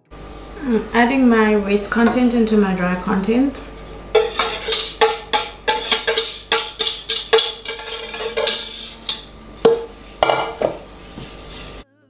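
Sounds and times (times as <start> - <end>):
utensils clinking against a bowl: 4.1 - 11.8.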